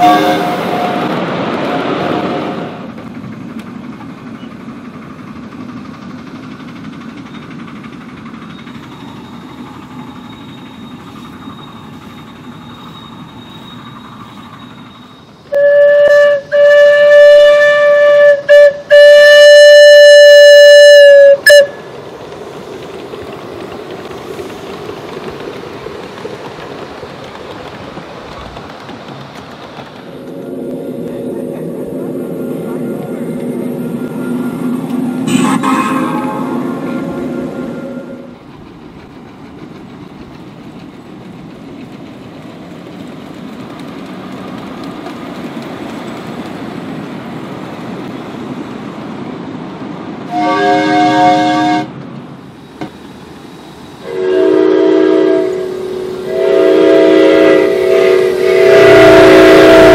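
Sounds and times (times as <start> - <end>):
steam whistle blowing: 0.0 - 2.8, 12.6 - 21.8, 33.8 - 38.4, 50.3 - 51.9, 54.0 - 59.9
miniature train rolling rumble: 0.0 - 59.9.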